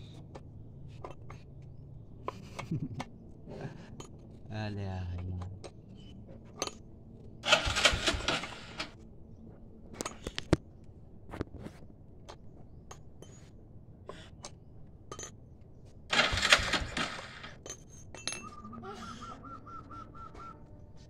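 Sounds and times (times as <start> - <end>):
metal tools clinking and scraping: 15.1 - 15.4
metal on metal rattle: 16.1 - 18.5.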